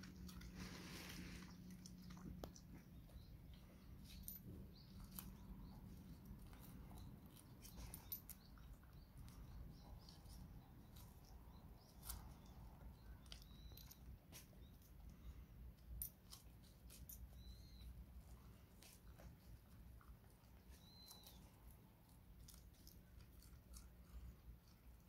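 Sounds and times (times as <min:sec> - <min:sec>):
dog chewing cabbage leaf: 0:16.1 - 0:25.0.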